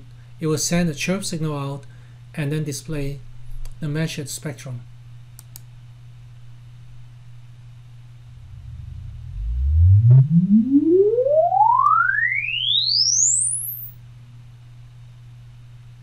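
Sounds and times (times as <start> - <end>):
steady low hum: 0.0 - 12.7
rising sine sweep tone: 8.2 - 14.0.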